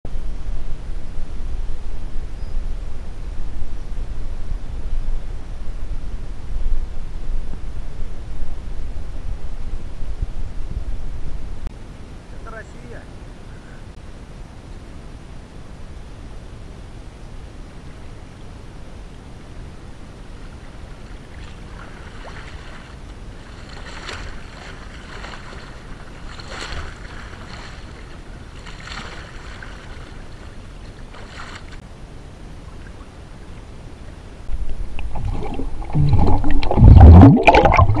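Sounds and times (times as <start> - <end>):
water splashed by hand: 21.4 - 30.5, 34.9 - 38.0
underwater churning and bubbling: 34.5 - 38.0.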